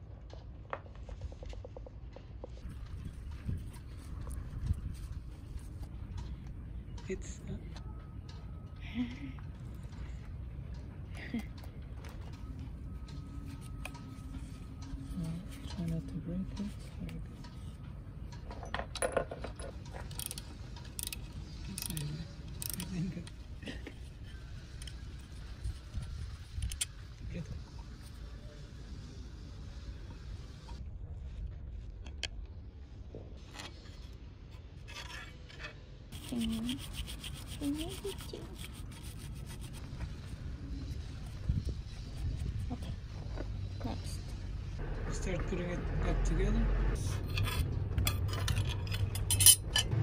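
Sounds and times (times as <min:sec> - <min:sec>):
metal parts clinking and scraping: 0:18.4 - 0:27.0, 0:47.0 - 0:50.0
pliers clicking on metal: 0:20.1 - 0:23.4
cloth rag rubbing on metal: 0:36.2 - 0:40.0.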